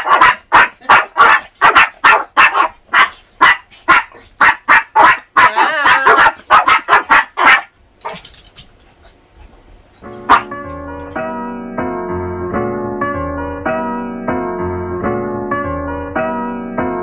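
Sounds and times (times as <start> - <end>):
small dog yapping: 0.0 - 8.3.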